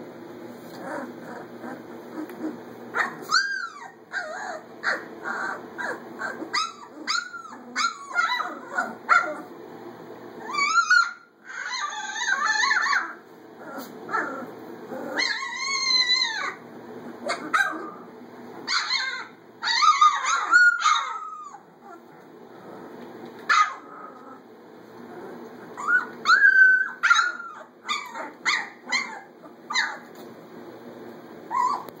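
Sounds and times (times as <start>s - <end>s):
puppies whining and yipping: 0.6s - 9.5s, 10.4s - 22.2s, 25.2s - 30.2s, 31.4s - 32.0s.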